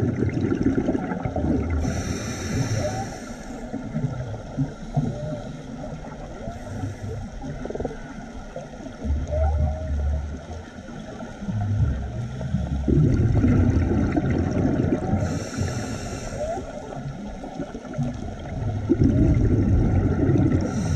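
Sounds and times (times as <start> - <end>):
exhaled bubbles rumbling: 0.0 - 20.9.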